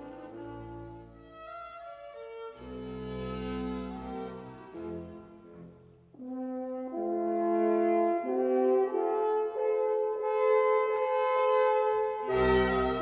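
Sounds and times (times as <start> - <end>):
strings: 0.0 - 6.4, 11.8 - 13.0
horns and oboes playing chords: 2.5 - 13.0.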